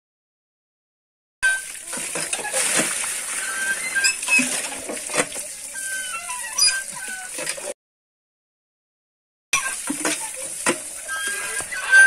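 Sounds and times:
water splashing over fish: 1.5 - 6.3, 9.6 - 11.9.

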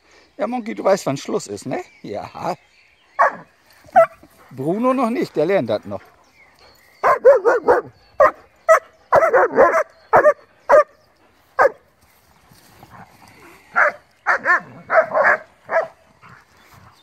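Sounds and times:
dogs barking: 3.2 - 4.5, 7.0 - 11.0, 11.6 - 11.9, 13.6 - 17.0.

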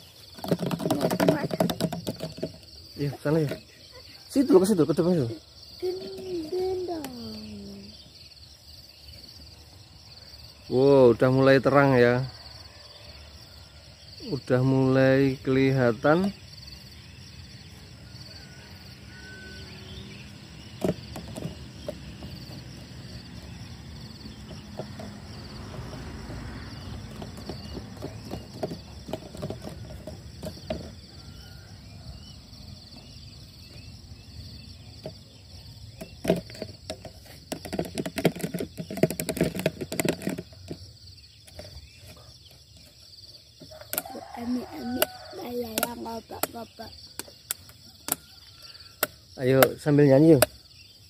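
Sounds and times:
insect chirring: 0.0 - 51.0
sharp clicks and rustles: 36.0 - 40.8.

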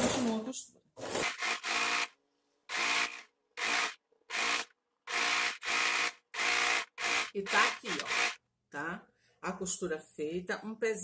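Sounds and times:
sewing machine stitching: 1.0 - 2.1, 2.7 - 8.4.

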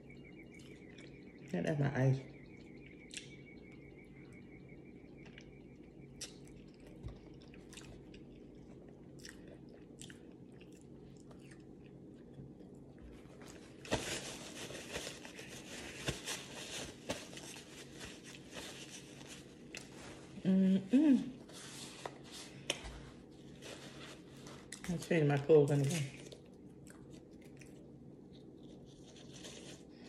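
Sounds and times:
faint steady hum: 0.0 - 30.0
chewing with mouth clicks: 3.0 - 3.4, 6.1 - 13.6, 26.1 - 29.1
paper crinkling: 13.2 - 20.4, 28.4 - 30.0.

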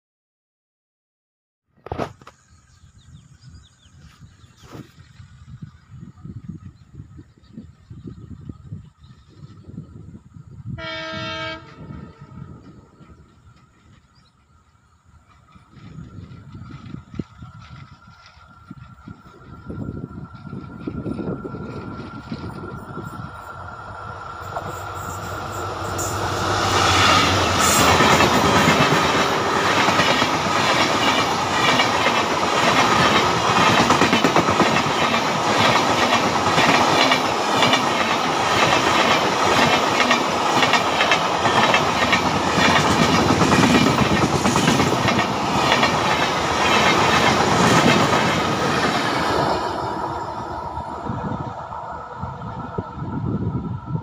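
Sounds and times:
diesel locomotive passing: 5.1 - 54.0
train wheels clickety-clack on rails: 12.6 - 51.3.

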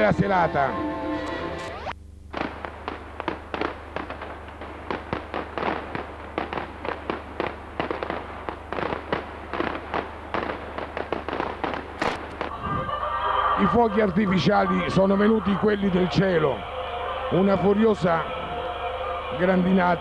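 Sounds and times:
fireworks bangs and cracks: 1.7 - 12.6.

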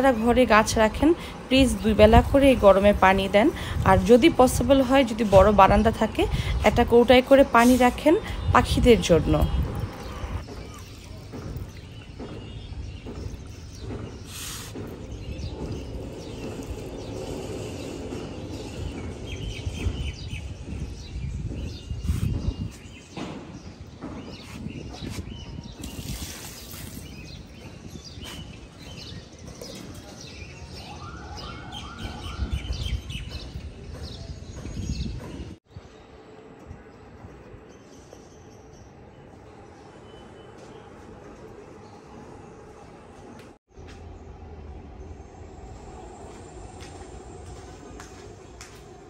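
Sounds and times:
small birds chirping: 9.4 - 36.1.

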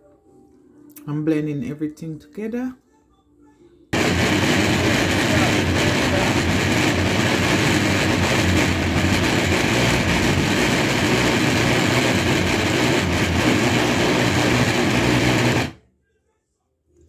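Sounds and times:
blender motor running: 4.0 - 15.8.

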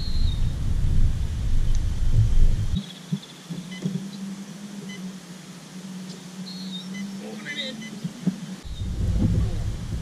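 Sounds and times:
wind buffeting microphone: 0.0 - 4.2, 8.0 - 10.0
faint steady hum: 0.0 - 10.0.

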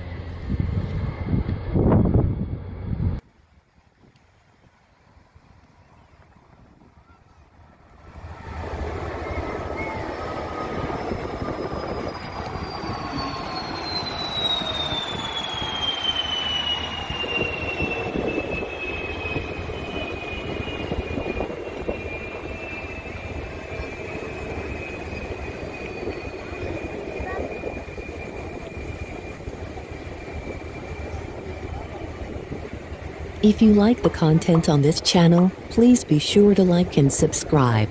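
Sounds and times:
jet engine roar: 0.0 - 3.2, 5.0 - 37.9
high jet whine falling in pitch: 8.0 - 37.9.

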